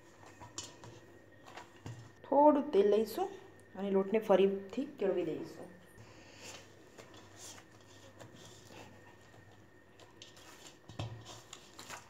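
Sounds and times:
dough squishing and patting: 0.0 - 2.2, 6.0 - 12.0.

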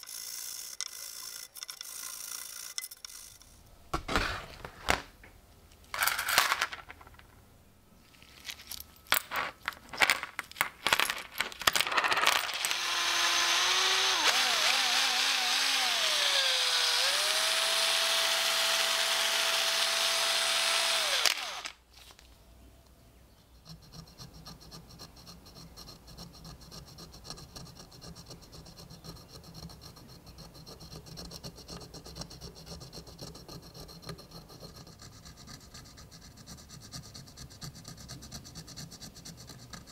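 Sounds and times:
rotary tool whine: 0.0 - 3.6, 11.8 - 21.8
toothpick scratching coin: 0.0 - 3.6, 23.6 - 39.9
coins and vise set down: 5.9 - 7.4, 8.4 - 12.8.

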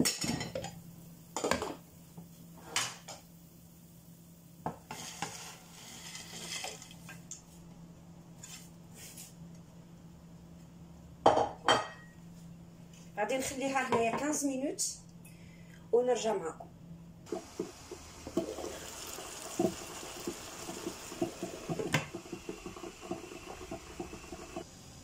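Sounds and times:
scraping in a pot: 4.9 - 7.2, 17.3 - 24.6.

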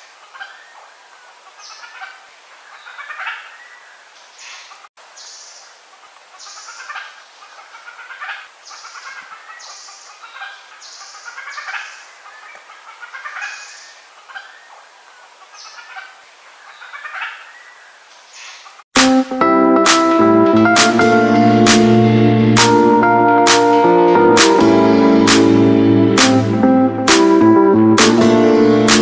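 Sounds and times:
high buzzy bird notes: 19.0 - 29.0.

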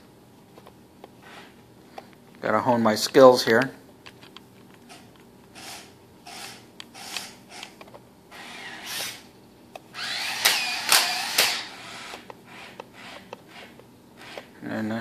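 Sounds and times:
toy robot motors whirring: 5.6 - 9.2, 10.0 - 14.5.

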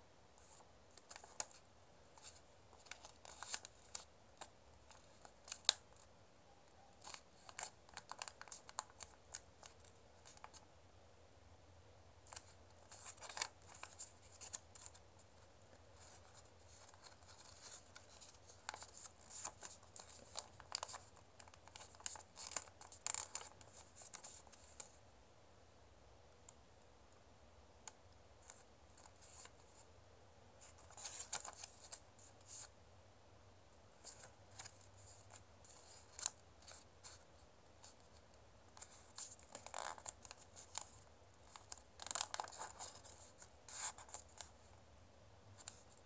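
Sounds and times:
paper crinkling and crackling: 0.4 - 6.1, 6.7 - 10.6, 12.2 - 25.0, 30.6 - 32.7, 34.0 - 44.6.

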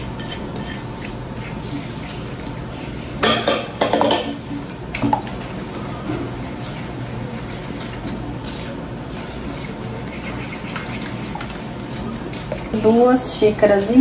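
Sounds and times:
wet batter mixing: 4.4 - 14.0.

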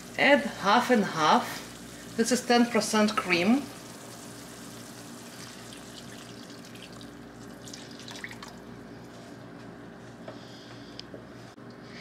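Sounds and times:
liquid trickling and bubbling: 3.7 - 8.8.

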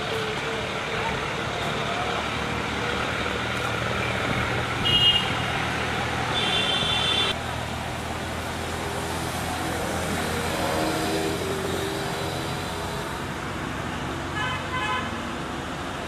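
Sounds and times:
road traffic noise: 0.0 - 16.0
vehicle horn toot: 4.8 - 5.4, 6.3 - 7.4.

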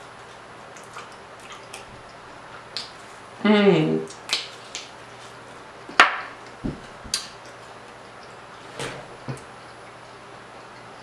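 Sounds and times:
wet mouth clicks and smacks chewing: 0.7 - 3.0.

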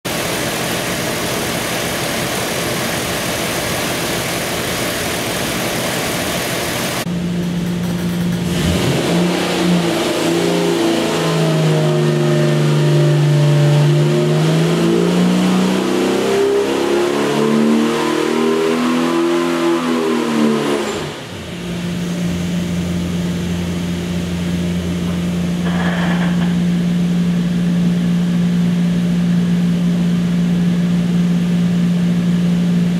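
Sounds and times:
engine running hard: 0.1 - 32.9.

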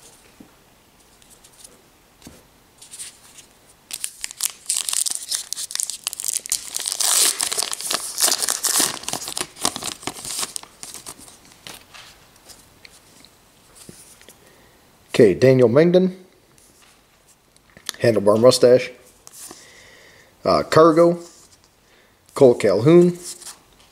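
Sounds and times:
cards rustling: 1.0 - 13.2
card pack wrapper tearing: 3.9 - 11.8.

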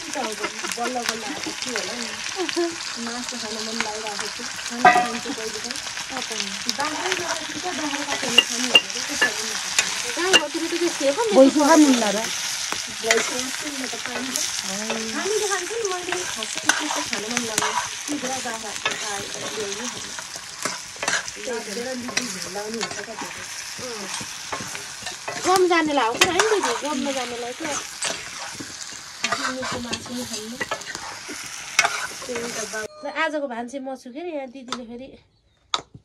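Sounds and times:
chicken sizzling in pan: 0.0 - 32.9
metal ladle scraping pan: 4.6 - 6.0, 6.8 - 32.9.

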